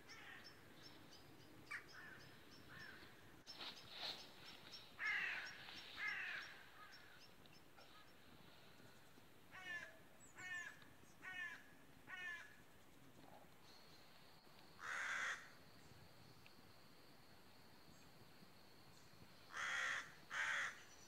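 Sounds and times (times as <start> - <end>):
crow cawing: 1.7 - 3.0, 5.0 - 7.1, 9.5 - 12.6, 14.8 - 15.5, 19.5 - 20.8.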